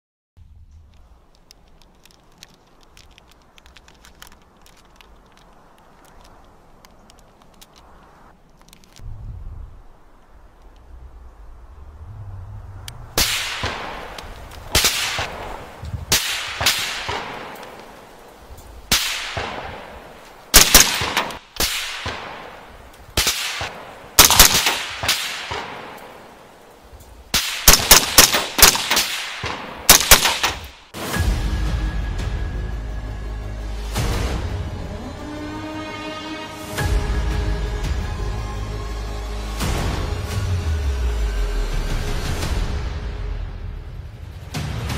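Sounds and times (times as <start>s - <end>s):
rifle shots cracking: 13.2s - 26.7s, 27.3s - 31.0s
steady music: 31.0s - 44.9s.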